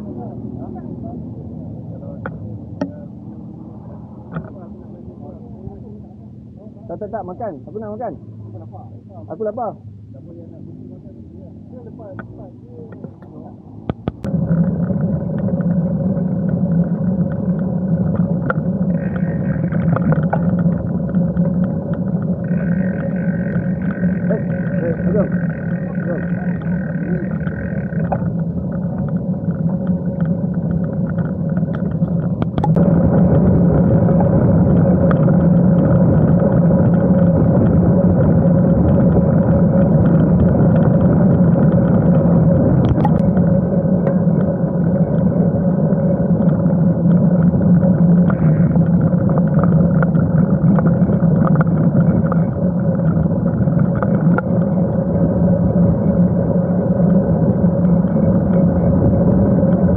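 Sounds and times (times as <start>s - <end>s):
wind noise on microphone: 13.0s - 59.9s.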